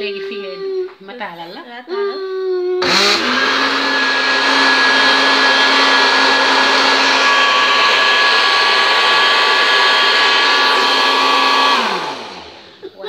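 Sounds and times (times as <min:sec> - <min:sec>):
blender motor whine: 0:02.8 - 0:12.8.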